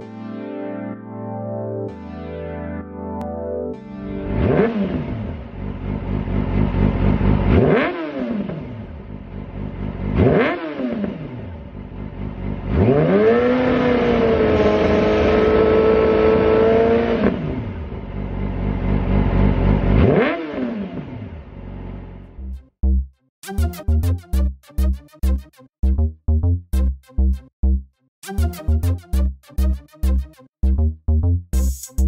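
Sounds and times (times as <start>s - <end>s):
motorcycle engine revving: 4.2s - 22.3s.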